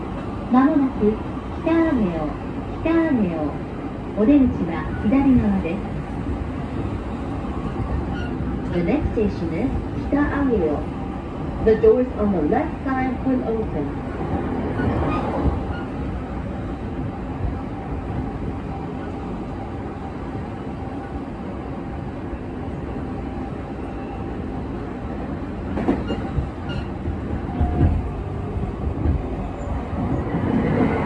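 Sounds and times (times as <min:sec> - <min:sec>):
train wheels rumbling on track: 0:00.0 - 0:31.0.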